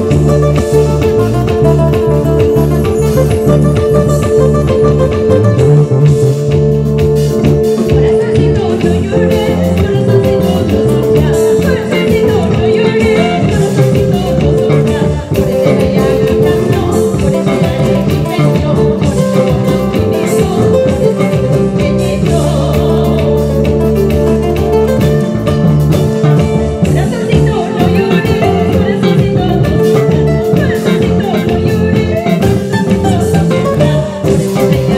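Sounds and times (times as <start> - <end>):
bass guitar: 0.0 - 34.9
drum kit beat: 0.0 - 34.9
nylon-string guitars: 0.0 - 34.9
woman singing: 7.5 - 34.9.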